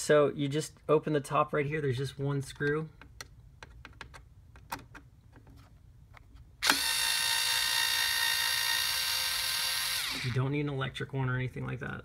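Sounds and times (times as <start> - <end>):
electric screwdriver motor whining: 6.6 - 10.4.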